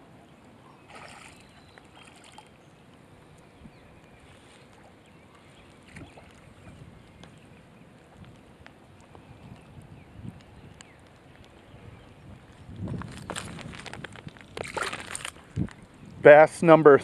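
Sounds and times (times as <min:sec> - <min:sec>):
fish splashing at water surface: 0:00.8 - 0:02.6, 0:14.6 - 0:15.3.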